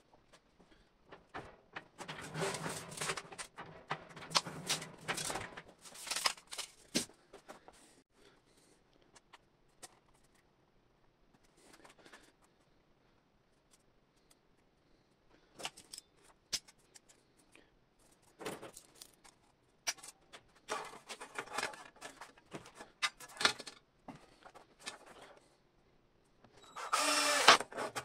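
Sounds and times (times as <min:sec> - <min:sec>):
sheet metal scraping and rattling: 0:01.1 - 0:06.3.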